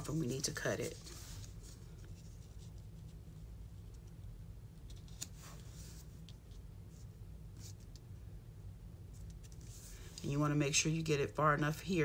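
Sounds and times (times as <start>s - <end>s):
paper rustling: 0.0s - 3.1s.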